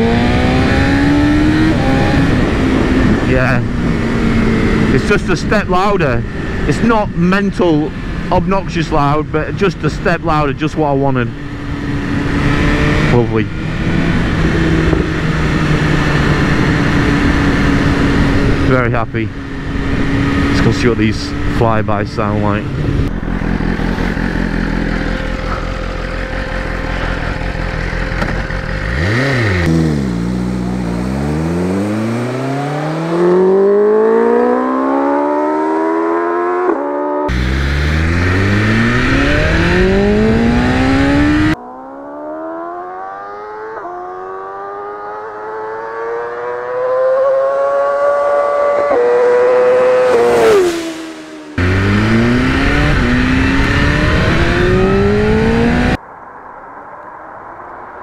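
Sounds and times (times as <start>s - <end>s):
motorcycle accelerating hard: 0.0s - 56.0s
motorcycle flying by: 22.4s - 56.0s.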